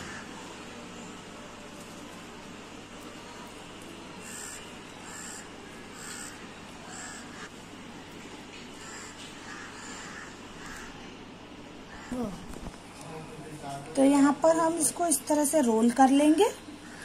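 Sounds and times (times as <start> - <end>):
crow cawing: 0.0 - 0.4, 4.2 - 7.5, 8.8 - 11.1, 11.9 - 12.4.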